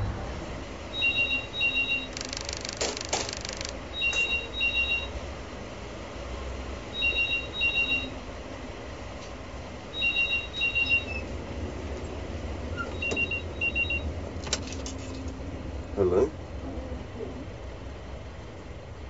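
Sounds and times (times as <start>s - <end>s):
low steady rumble: 0.0s - 7.0s
telephone ringing: 1.3s - 4.4s
loud rushing hiss: 2.1s - 3.8s.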